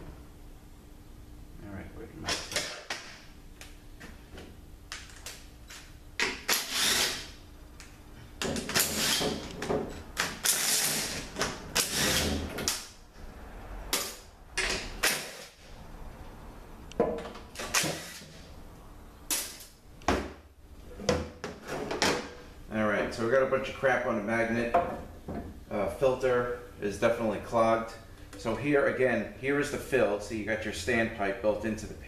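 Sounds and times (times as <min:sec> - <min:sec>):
cordless power driver whirring: 0:06.5 - 0:07.2.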